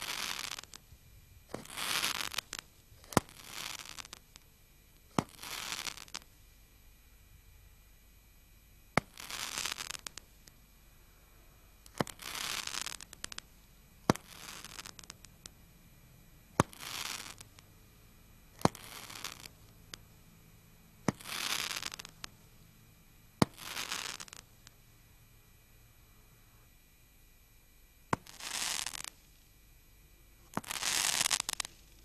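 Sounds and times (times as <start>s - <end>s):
crackling star bursts: 0.0s - 7.2s, 8.9s - 26.8s, 28.0s - 29.6s, 30.2s - 32.0s
roman candle firing pops: 1.5s - 3.4s, 5.1s - 6.2s, 11.9s - 13.4s, 14.1s - 15.3s, 16.6s - 17.4s, 18.6s - 19.4s, 21.0s - 22.1s, 23.4s - 24.4s, 30.5s - 31.7s.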